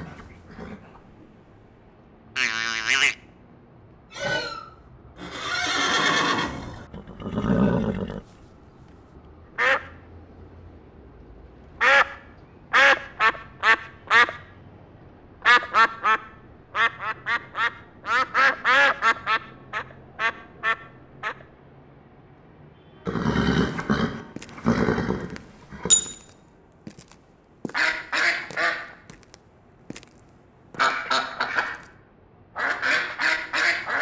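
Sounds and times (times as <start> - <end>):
duck quacking: 9.6 - 10.0, 27.7 - 29.1, 30.8 - 31.9, 32.6 - 34.0.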